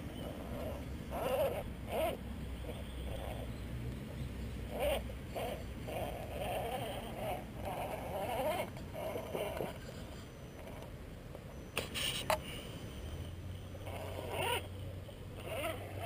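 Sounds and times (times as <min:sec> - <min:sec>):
electric motor and gears whining: 0:00.0 - 0:10.0, 0:13.0 - 0:14.8, 0:15.4 - 0:16.0.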